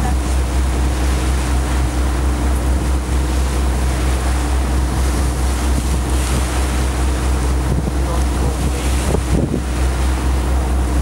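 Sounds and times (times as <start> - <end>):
boat engine droning: 0.0 - 11.0
water washing along hull: 0.0 - 11.0
wind buffeting microphone: 3.7 - 11.0.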